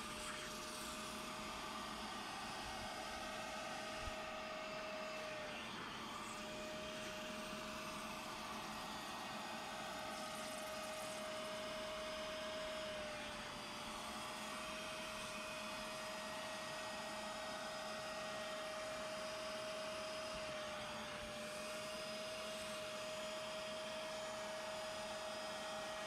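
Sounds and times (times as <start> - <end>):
suction tool on wet fabric: 0.0 - 16.7
vacuum motor whine: 0.0 - 26.0.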